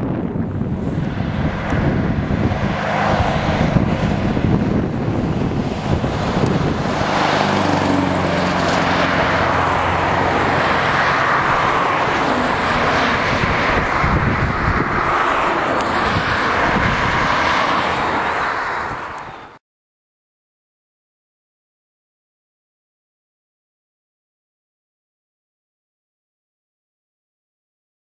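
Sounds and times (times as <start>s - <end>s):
truck engine rumbling: 0.0s - 19.6s
tyre and road noise: 0.0s - 19.6s.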